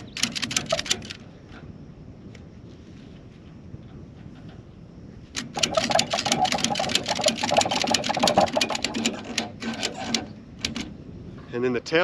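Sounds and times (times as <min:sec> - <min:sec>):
ratchet strap clicking: 0:00.0 - 0:01.2, 0:05.4 - 0:11.0.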